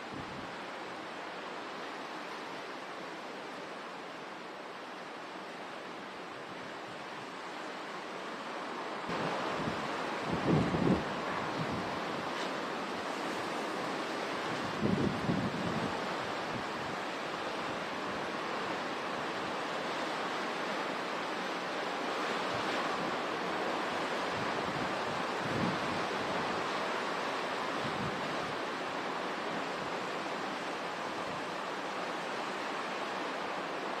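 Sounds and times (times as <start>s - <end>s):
hurricane wind: 0.0s - 34.0s
wind buffeting microphone: 9.1s - 12.3s.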